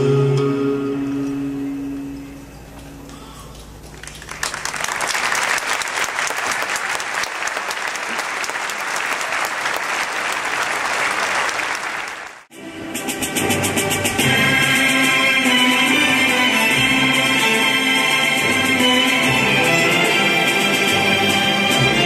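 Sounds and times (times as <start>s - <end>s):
music: 0.0s - 3.2s, 12.5s - 22.0s
audience applauding: 3.9s - 12.5s.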